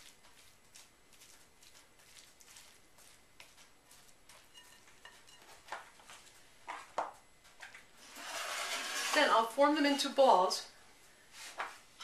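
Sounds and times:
spatula scraping a glass bowl: 4.4 - 5.6, 8.0 - 9.4.

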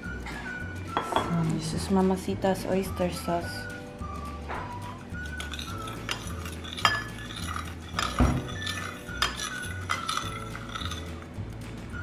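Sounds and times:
soft background music: 0.0 - 12.0
utensil clinking against cookware: 1.0 - 1.3, 5.2 - 11.1.

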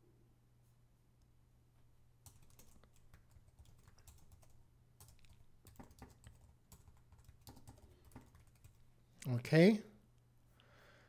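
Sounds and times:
keyboard typing: 2.2 - 8.8.

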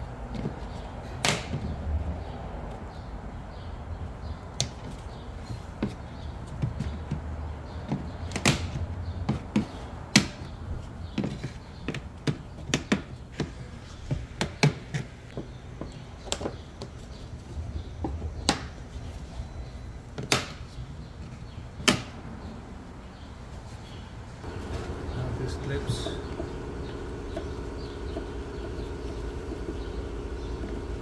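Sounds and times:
steady low hum: 24.2 - 31.0.

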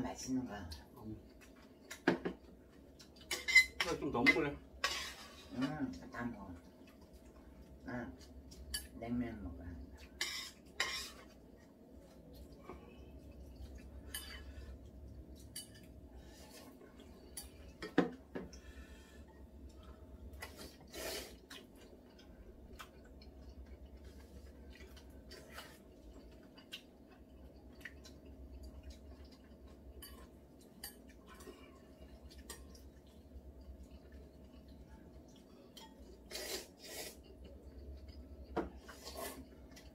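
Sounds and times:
low steady hum: 0.0 - 39.9
noodle slurp: 36.3 - 37.2.

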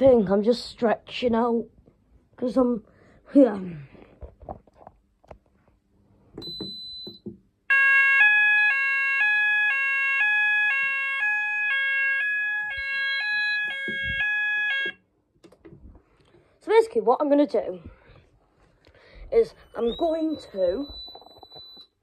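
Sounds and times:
two-tone fire alarm sounder: 6.4 - 15.1, 19.7 - 22.0.

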